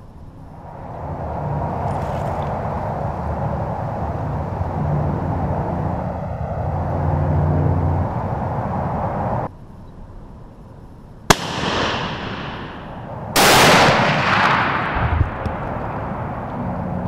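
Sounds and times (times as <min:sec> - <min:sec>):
rifle shots with echo: 0:11.3 - 0:16.4.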